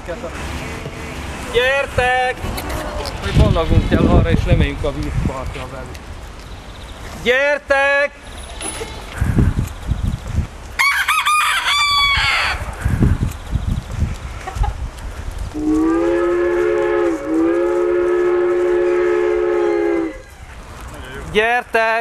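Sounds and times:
rooster crowing: 10.8s - 12.7s, 16.0s - 20.4s.

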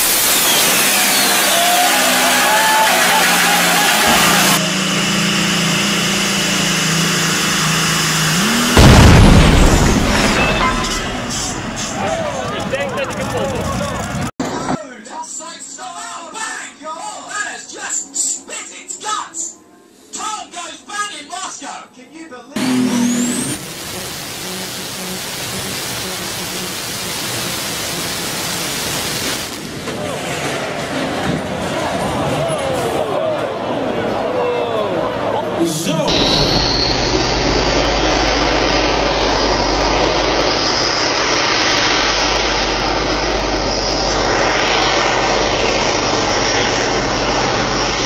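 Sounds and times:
tractor engine droning: 0.0s - 14.3s, 22.6s - 29.9s, 36.0s - 48.0s
noisy rush: 0.0s - 14.8s, 22.6s - 48.0s
engine exploding bang: 3.9s - 13.3s, 36.1s - 48.0s.

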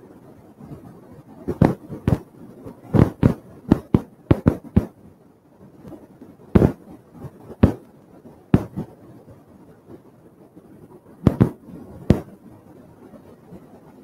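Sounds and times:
sharp thumps and pops: 1.5s - 2.2s, 2.9s - 5.0s, 6.6s - 6.8s, 7.6s - 7.9s, 8.6s - 8.9s, 11.3s - 12.3s.

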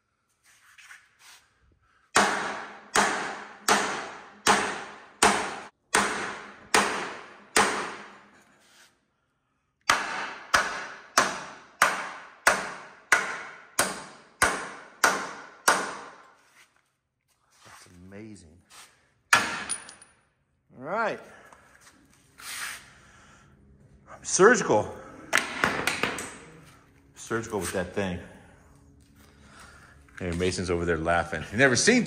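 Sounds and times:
sledgehammer striking steel: 2.1s - 8.2s, 19.3s - 20.0s.

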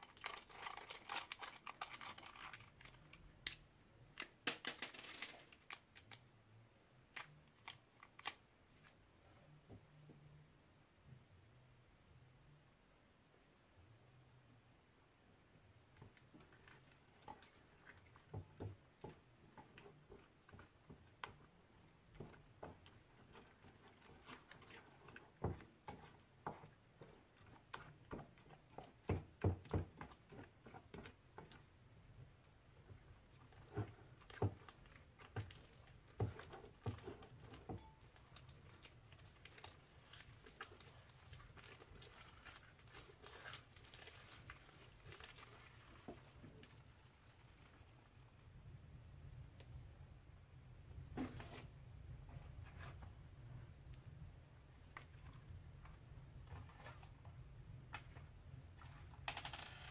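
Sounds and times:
slime squelching: 0.0s - 3.6s, 16.0s - 48.5s.

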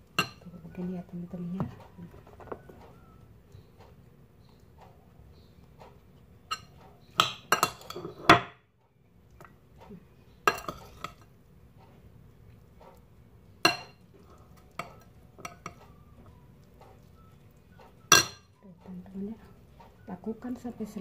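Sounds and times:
spoon worked in a bowl: 0.0s - 8.5s, 9.3s - 21.0s
kitchenware clinking and knocking: 6.5s - 8.6s, 10.4s - 11.2s, 18.0s - 18.6s.

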